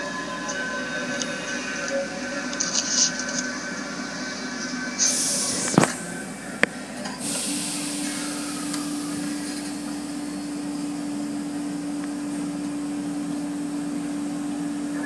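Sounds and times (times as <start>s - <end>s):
machine hum: 0.0s - 15.0s
water spray hissing on car: 7.2s - 10.1s.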